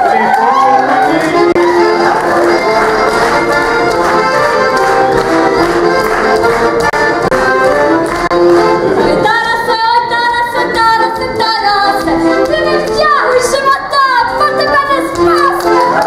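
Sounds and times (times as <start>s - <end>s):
folk music: 0.0s - 16.0s
woman singing folk tune: 9.0s - 16.0s.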